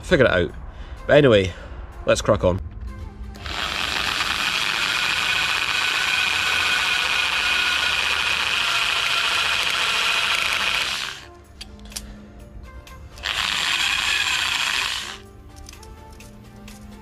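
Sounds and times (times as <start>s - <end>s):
electric drill whining: 3.4s - 11.3s, 13.2s - 15.3s.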